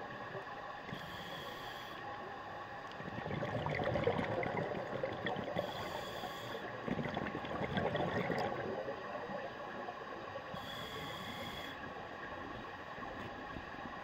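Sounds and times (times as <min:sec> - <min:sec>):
faint steady whine: 0:00.0 - 0:14.0
underwater regulator bubbles gurgling: 0:02.8 - 0:14.0.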